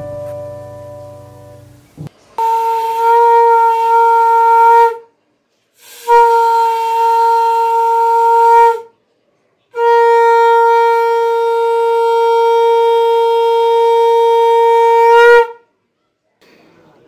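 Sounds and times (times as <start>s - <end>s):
conch shell blasts: 2.4s - 5.1s, 5.8s - 8.9s, 9.8s - 15.6s.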